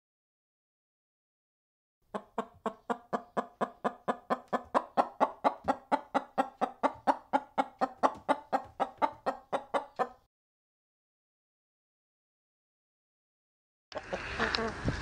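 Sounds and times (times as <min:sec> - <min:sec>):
hen clucking: 0:02.1 - 0:10.3, 0:13.9 - 0:14.8.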